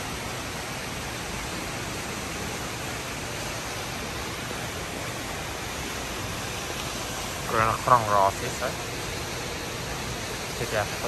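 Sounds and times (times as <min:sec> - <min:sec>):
falling water rushing: 0:00.0 - 0:11.0.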